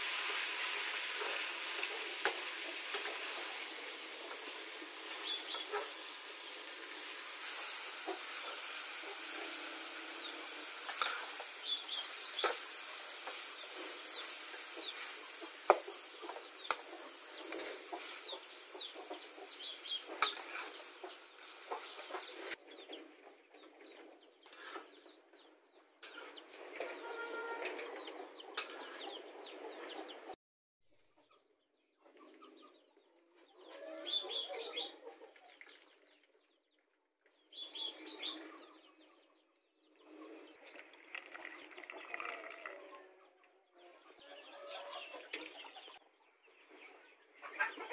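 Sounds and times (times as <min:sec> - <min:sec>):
meat sizzling in a wok: 0:00.0 - 0:19.0
chickens clucking: 0:00.4 - 0:30.4, 0:31.0 - 0:35.8, 0:37.3 - 0:47.9.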